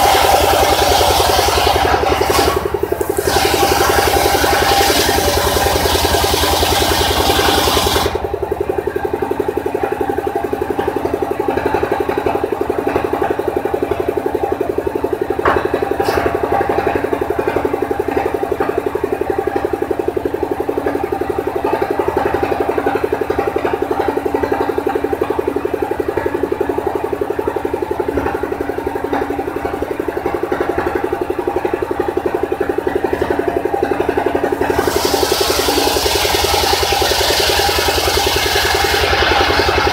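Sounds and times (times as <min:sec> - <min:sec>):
circular saw cutting wood: 0:00.0 - 0:08.3, 0:34.6 - 0:39.9
saw engine running: 0:00.0 - 0:39.9.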